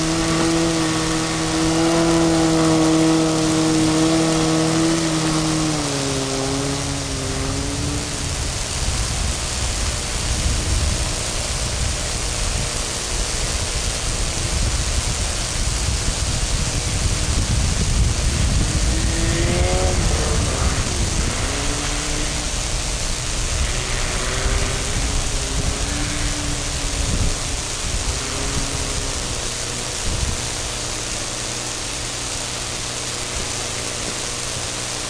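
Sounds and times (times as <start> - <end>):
snow vehicle motor running: 0.0 - 35.0
steady rushing noise: 0.0 - 35.0.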